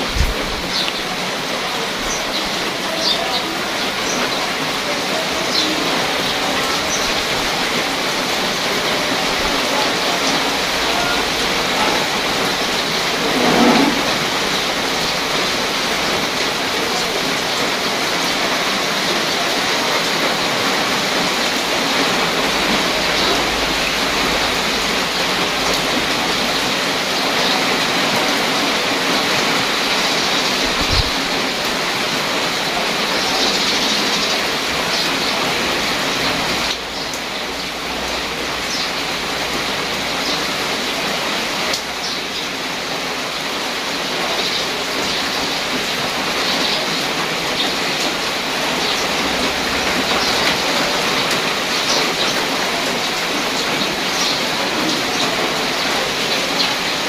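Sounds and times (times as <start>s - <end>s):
rain on leaves and pavement: 0.0s - 57.0s.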